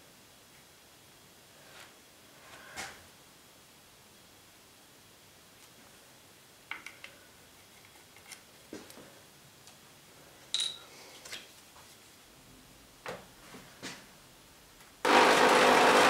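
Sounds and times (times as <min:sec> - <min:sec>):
metallic clink with ring: 0:10.5 - 0:10.9.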